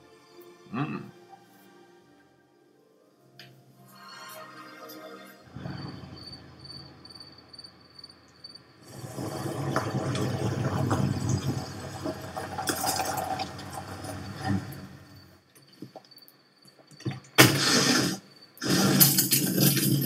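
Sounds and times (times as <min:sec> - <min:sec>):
faint insect chirping: 0:05.5 - 0:08.9, 0:14.7 - 0:17.4, 0:18.1 - 0:18.6.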